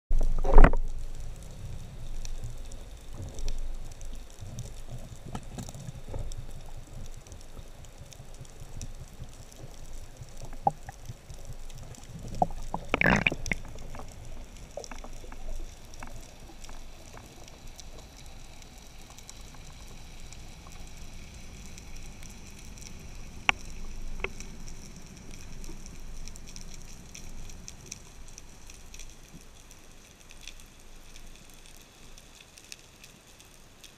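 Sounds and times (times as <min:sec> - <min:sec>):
underwater water rumble: 0:00.1 - 0:32.3
small clicks and knocks: 0:00.2 - 0:01.2, 0:02.2 - 0:19.8, 0:22.7 - 0:30.6.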